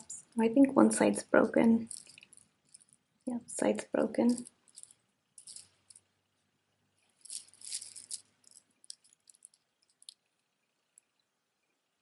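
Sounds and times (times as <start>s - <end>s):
plastic beads clicking and rattling: 1.8s - 3.0s, 4.2s - 6.1s, 7.0s - 11.3s.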